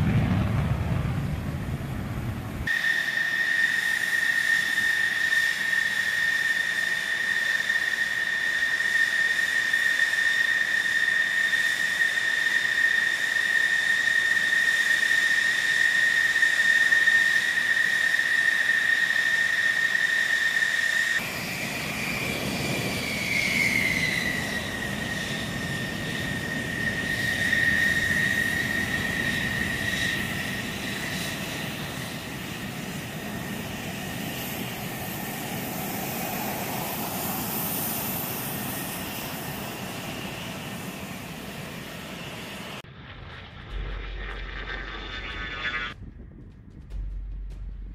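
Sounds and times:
low rumble: 0:00.0 - 0:02.7, 0:42.8 - 0:47.9
jet engine whine: 0:00.0 - 0:47.9.

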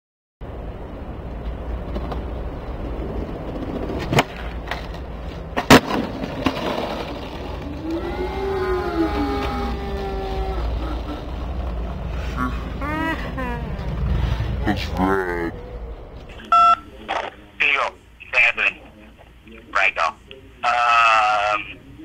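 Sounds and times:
skateboard wheels rolling: 0:00.8 - 0:12.3
sharp skateboard cracks: 0:03.8 - 0:07.7.

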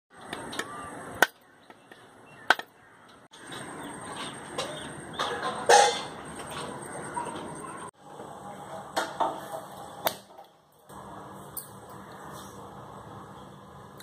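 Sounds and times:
birds chirping: 0:00.1 - 0:08.0.

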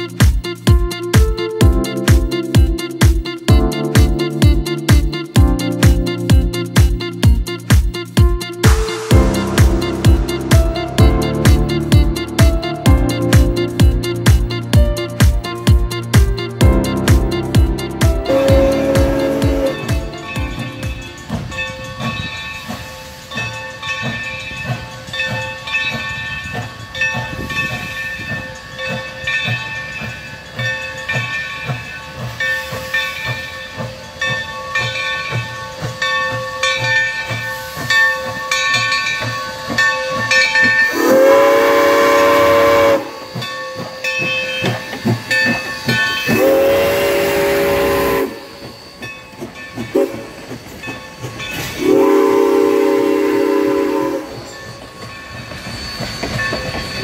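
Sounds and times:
locomotive bell ringing: 0:00.0 - 0:57.0
hissing steam: 0:07.6 - 0:11.9, 0:18.2 - 0:57.0
steam exhaust chuffs: 0:08.6 - 0:36.3, 0:37.2 - 0:57.0
steam whistle blasts: 0:18.2 - 0:20.3, 0:40.8 - 0:43.5, 0:46.1 - 0:49.1, 0:49.9 - 0:50.5, 0:51.6 - 0:54.7.

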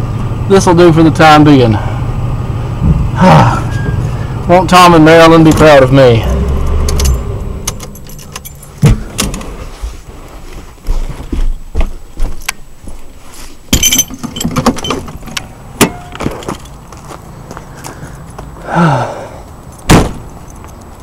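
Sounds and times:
knocks and clunks: 0:02.8 - 0:03.1, 0:05.4 - 0:10.0, 0:13.7 - 0:16.8
keys jangling: 0:07.0 - 0:08.8, 0:13.7 - 0:15.4, 0:19.7 - 0:21.0.

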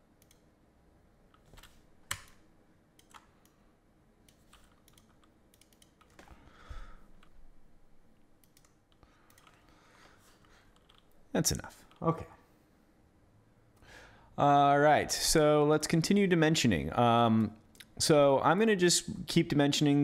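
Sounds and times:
keyboard keystrokes and clicks: 0:00.1 - 0:00.5, 0:01.3 - 0:03.6, 0:04.2 - 0:06.4, 0:08.4 - 0:09.6, 0:10.4 - 0:11.2.

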